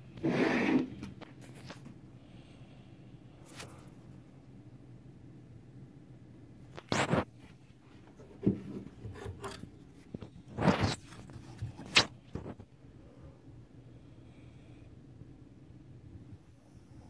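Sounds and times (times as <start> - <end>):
rubbing and scraping of handled model: 6.7 - 12.8.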